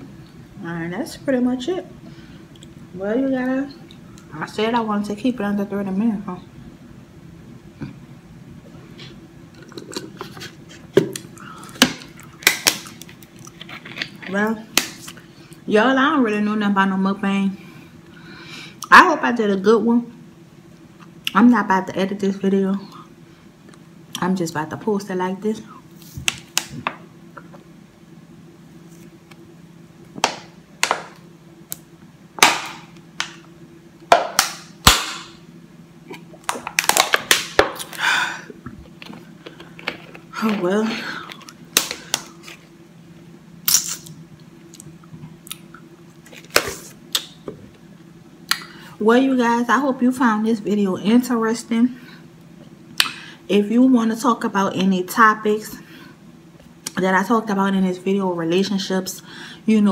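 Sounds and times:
plastic bottle crackling and popping: 36.4 - 37.9.

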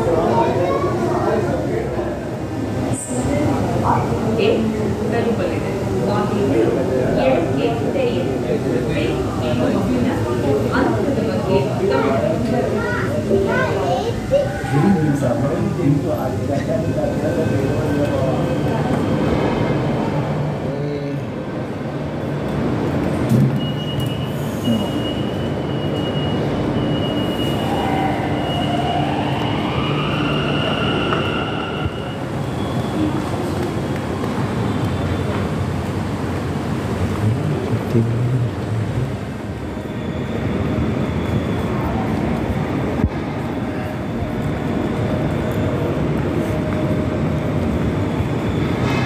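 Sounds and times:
metro train running: 0.0 - 49.0
steady high tone: 13.0 - 15.5, 24.7 - 32.7.

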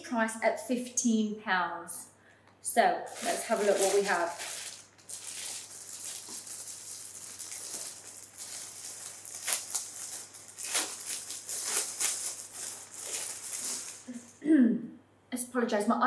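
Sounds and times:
plastic bag crinkling: 3.1 - 14.4.

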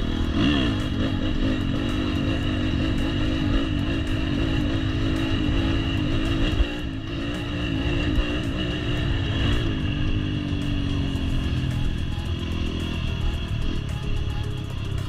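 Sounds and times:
dirt bike engine running: 0.0 - 15.0.

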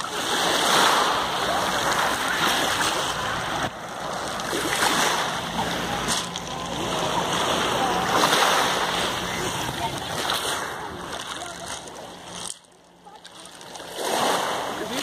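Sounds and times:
indistinct voices: 0.0 - 15.0
water lapping at pebble shore: 0.0 - 15.0.

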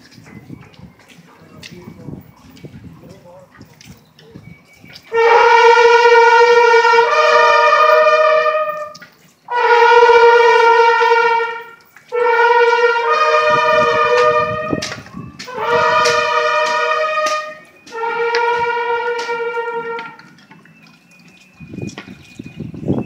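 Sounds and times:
brass horns playing held notes: 5.1 - 20.3.

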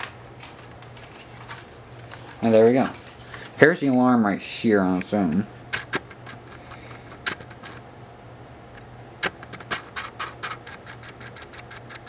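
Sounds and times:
low steady hum: 0.0 - 12.0
fingers clicking plastic housing: 9.2 - 12.0.

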